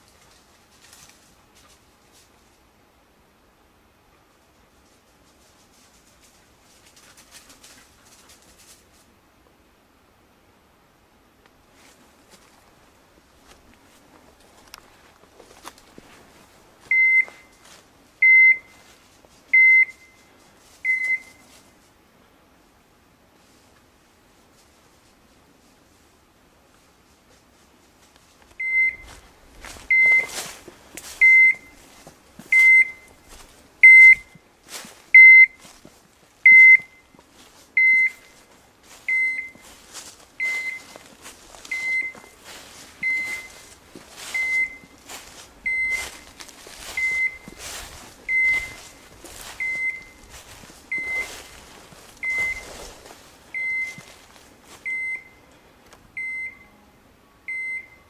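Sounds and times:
footsteps crunching dry leaves: 11.7 - 18.0, 27.8 - 36.4, 37.0 - 54.9
beeper collar high beeps: 16.9 - 17.6, 18.2 - 18.8, 19.6 - 20.3, 20.9 - 21.4, 28.6 - 29.2, 29.9 - 30.5, 31.2 - 31.8, 32.5 - 34.4, 35.1 - 35.6, 36.4 - 37.2, 37.8 - 38.4, 39.0 - 39.7, 40.4 - 41.0, 41.7 - 42.4, 43.0 - 45.0, 45.6 - 51.6, 52.2 - 52.9, 53.5 - 54.1, 56.2 - 56.8.

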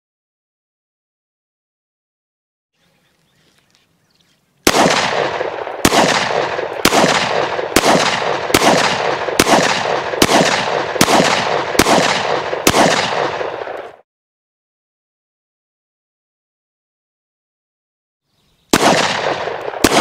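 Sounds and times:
pistol shots with echo: 4.6 - 14.0, 18.7 - 20.0.

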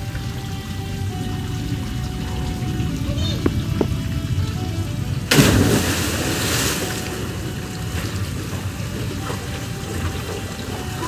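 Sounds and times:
churning water: 0.0 - 11.0
person splashing into water: 5.3 - 7.1.

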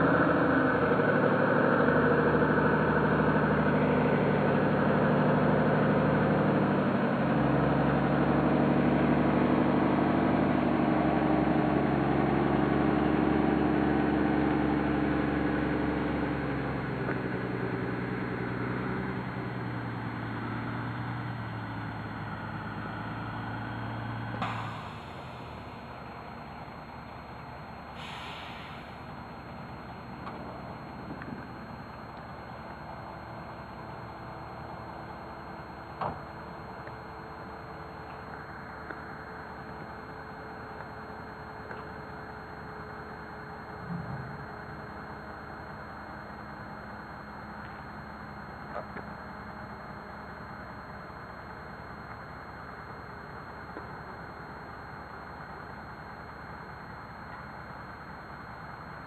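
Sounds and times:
short hiss: 24.4 - 25.4, 28.0 - 29.0.

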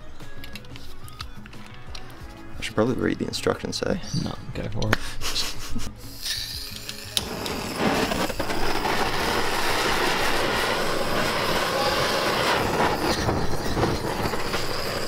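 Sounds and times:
blowtorch hissing roar: 6.6 - 15.0.

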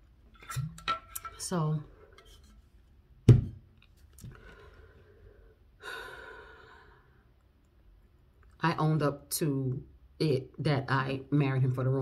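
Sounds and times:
object thumping on table: 3.2 - 3.6
woman sighing: 5.8 - 7.0.

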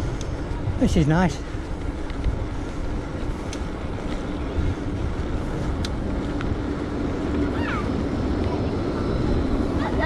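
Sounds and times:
bicycle tyre and road noise: 0.0 - 10.0
wind rushing over microphone: 0.0 - 10.0.

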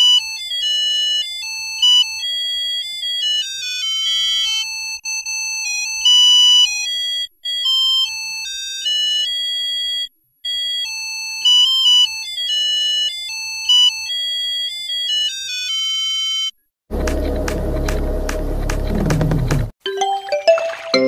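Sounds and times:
electronic ringtone melody: 0.0 - 9.9, 19.9 - 21.0.

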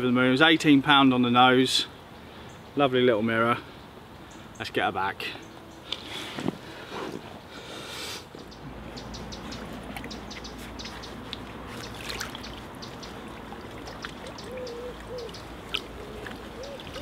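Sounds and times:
water trickling and splashing: 8.7 - 17.0.

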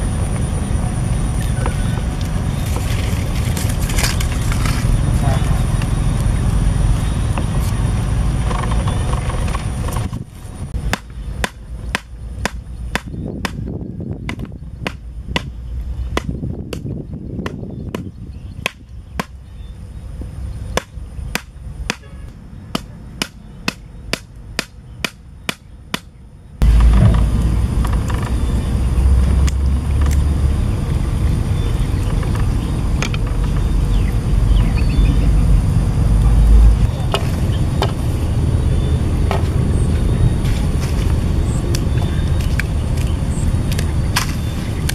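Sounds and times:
loud low rumbling: 0.0 - 24.1, 26.4 - 44.9
club hammering wooden stakes: 10.9 - 13.7, 14.3 - 15.5, 16.1 - 19.4, 20.7 - 26.1.

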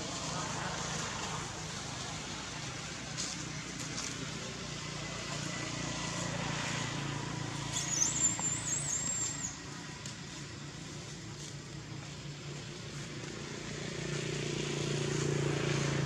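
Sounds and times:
vehicle engine humming: 0.0 - 16.0
thin high wavering call: 7.8 - 9.6.

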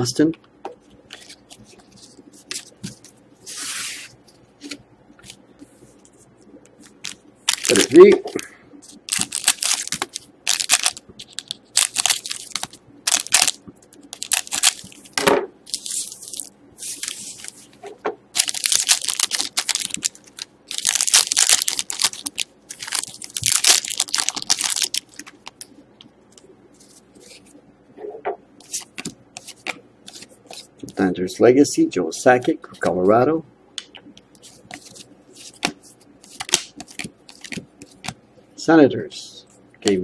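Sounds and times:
foil wrapper crinkling and tearing: 7.0 - 8.0, 8.9 - 15.1, 18.4 - 25.7.

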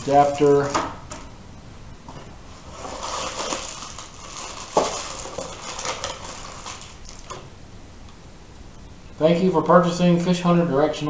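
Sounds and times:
cardboard and plastic rustling: 0.0 - 1.2, 2.1 - 7.5.

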